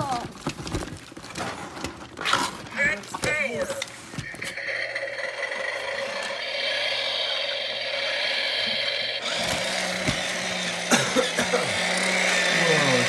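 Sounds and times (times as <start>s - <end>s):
toy electric motors whirring: 3.2s - 13.0s.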